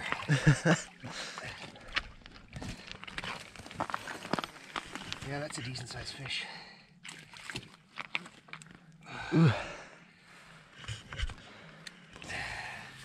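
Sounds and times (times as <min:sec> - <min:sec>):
loud vocal grunt: 0:09.1 - 0:09.8.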